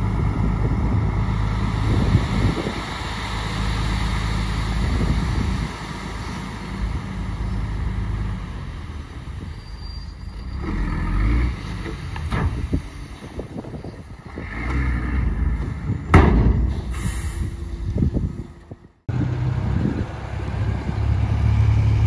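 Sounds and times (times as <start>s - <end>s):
diesel machinery engine: 0.0s - 22.0s
metal knocks: 15.6s - 16.9s.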